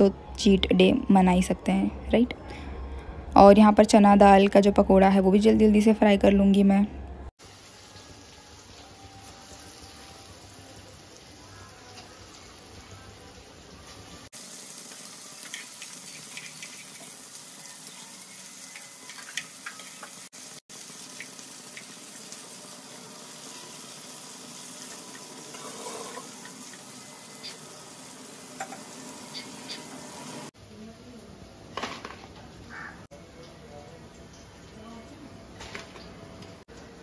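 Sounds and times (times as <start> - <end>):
hot oil sizzling: 7.4 - 30.6.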